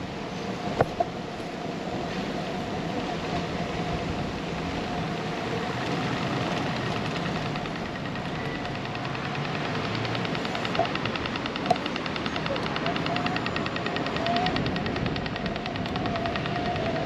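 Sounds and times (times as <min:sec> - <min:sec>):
passing traffic rushing: 0:00.0 - 0:17.0
fast even ticking: 0:05.6 - 0:17.0.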